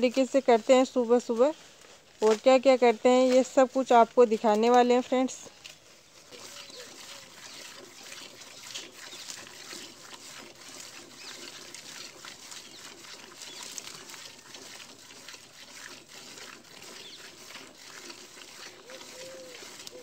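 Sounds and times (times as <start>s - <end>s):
milk squirting into steel bucket: 6.3s - 20.0s.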